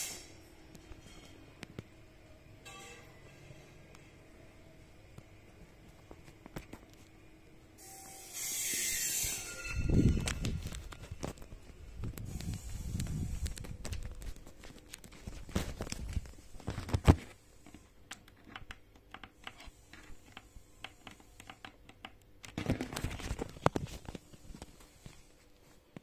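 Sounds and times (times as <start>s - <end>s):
rustling handling noise: 9.8s - 18.3s, 22.5s - 26.0s.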